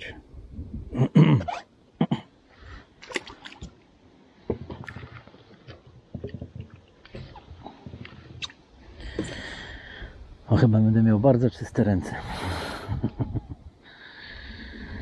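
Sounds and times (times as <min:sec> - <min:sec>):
water splashing and dripping: 0:03.0 - 0:08.6.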